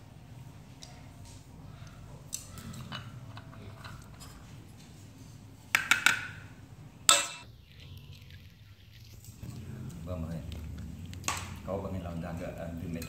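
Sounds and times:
utensils clinking against bowls: 2.3 - 6.2, 7.1 - 8.2.

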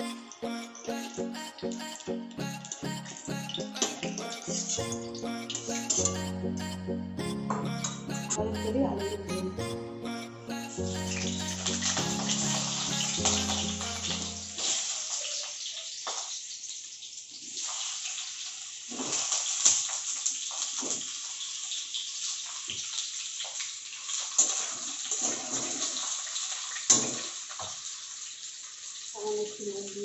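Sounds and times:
potatoes sizzling in oil: 11.0 - 30.0.

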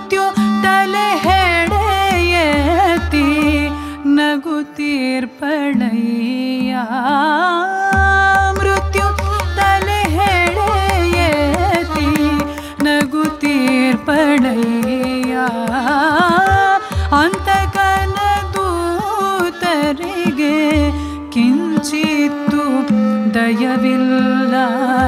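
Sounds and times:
violin: 0.0 - 25.0
woman singing ornamented notes: 0.0 - 25.0.

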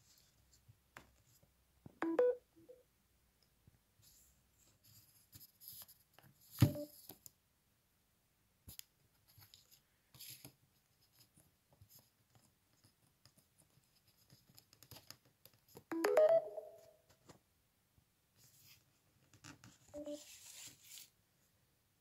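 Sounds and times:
phone charging chime: 2.0 - 2.4, 15.9 - 16.9.

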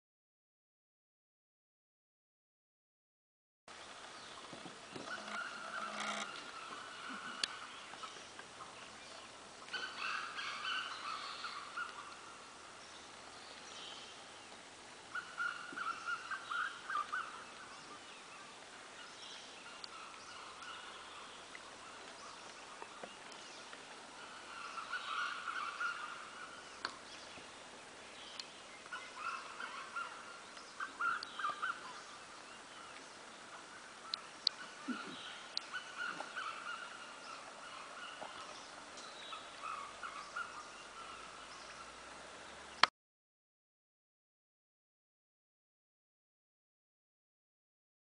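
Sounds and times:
junglefowl cackling: 5.0 - 7.7, 24.5 - 26.4.

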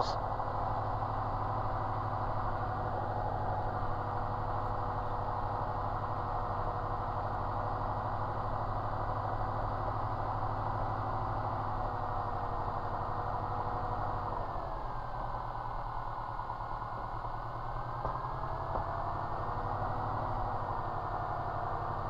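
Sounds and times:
aircraft piston engine humming: 0.0 - 0.3.

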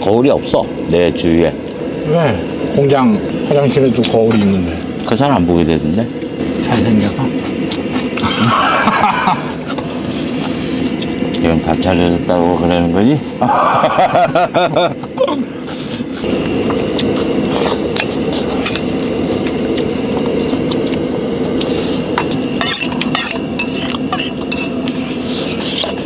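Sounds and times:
low hum: 0.0 - 26.0
metal utensils clinking on bowls: 22.2 - 25.1.

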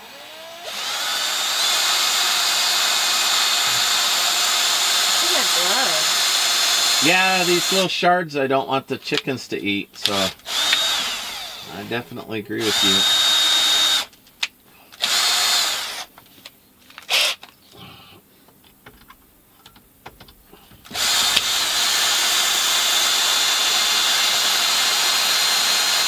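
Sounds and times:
power drill whining: 0.0 - 7.9, 10.0 - 12.0, 12.6 - 14.1, 15.0 - 16.1, 17.1 - 17.4, 20.8 - 26.0.

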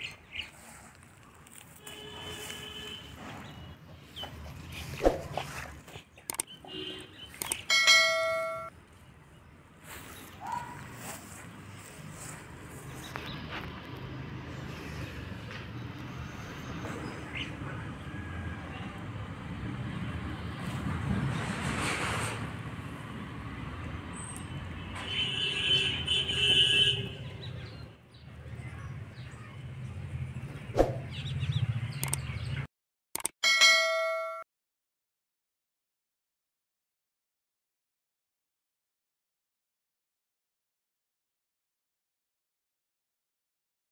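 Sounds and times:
quick clicks: 6.2 - 6.6, 7.3 - 7.7, 32.0 - 32.3
bell-like ding: 7.7 - 8.7, 33.4 - 34.4.

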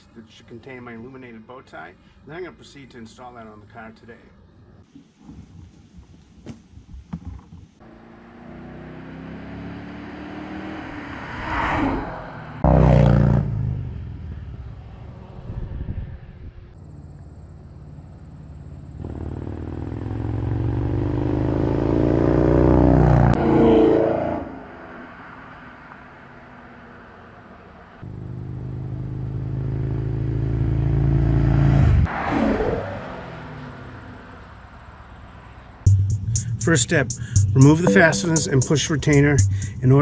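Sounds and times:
car engine accelerating past: 7.8 - 16.4, 19.0 - 25.4, 28.1 - 34.5.

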